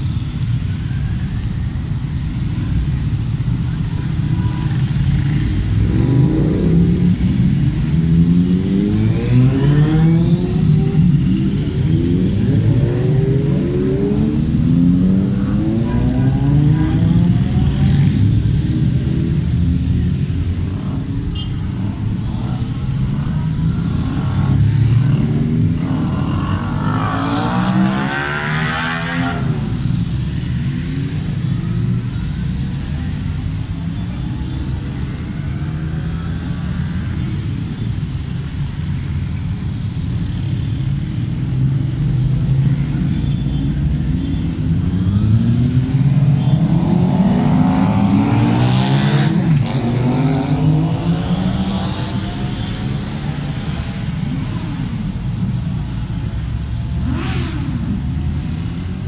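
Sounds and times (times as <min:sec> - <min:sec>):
motorcycles riding past: 0:00.0 - 0:59.0
motorcycle engine revving: 0:56.9 - 0:59.0.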